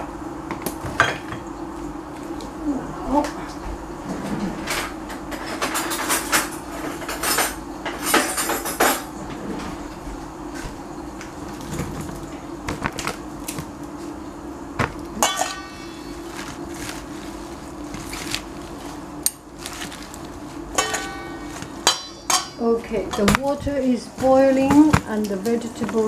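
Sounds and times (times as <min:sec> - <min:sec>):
steady low hum: 0:00.0 - 0:26.0
dishes and utensils clattering: 0:04.1 - 0:09.8, 0:15.1 - 0:17.0, 0:20.7 - 0:23.7.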